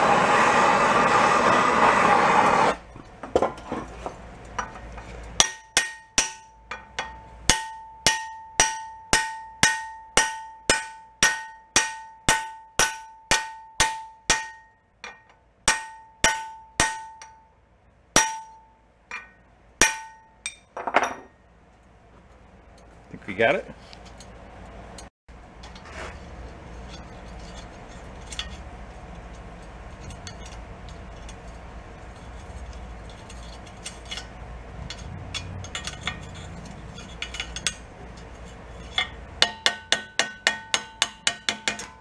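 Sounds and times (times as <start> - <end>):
gas torch hissing: 0.0 - 2.8.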